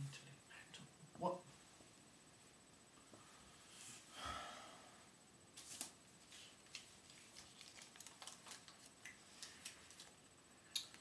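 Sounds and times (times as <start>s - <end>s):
paper banknote crinkling: 5.6s - 10.1s.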